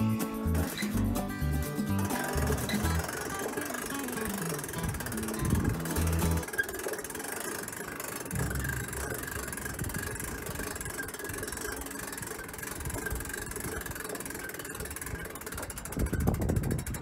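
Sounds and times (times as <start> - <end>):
winch pulling: 0.0 - 17.0
car rolling low rumble: 0.5 - 6.5, 8.3 - 17.0
vehicle engine idling: 1.4 - 14.0.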